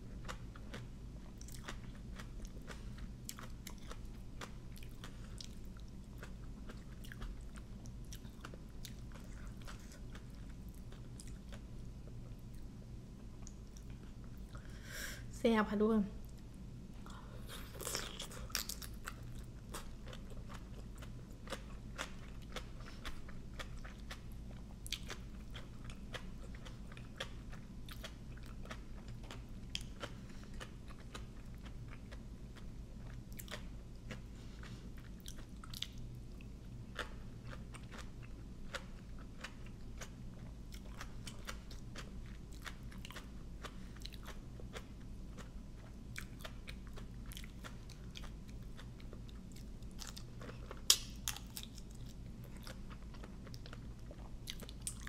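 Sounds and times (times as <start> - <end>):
chewing and crunching food: 0.0 - 14.8, 16.2 - 55.0.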